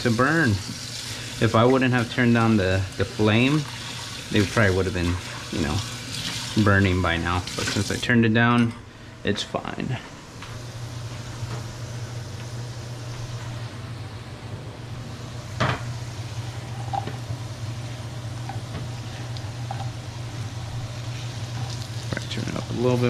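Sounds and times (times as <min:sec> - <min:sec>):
potatoes sizzling in oil: 0:00.0 - 0:08.0, 0:19.9 - 0:23.0
steady low hum: 0:00.0 - 0:23.0.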